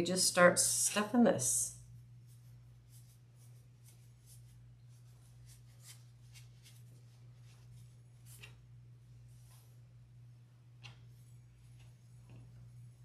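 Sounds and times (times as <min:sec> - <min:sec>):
steady low hum: 0:00.0 - 0:13.0
stuffing scratching in felt: 0:02.3 - 0:08.5.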